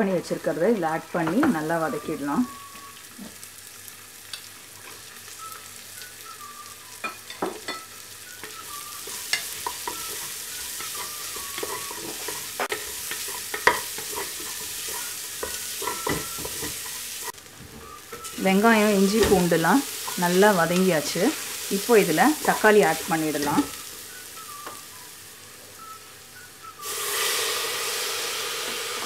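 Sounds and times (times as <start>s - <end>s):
onions sizzling in hot oil: 0.0s - 29.0s
wooden spatula scraping a pot: 9.0s - 17.4s.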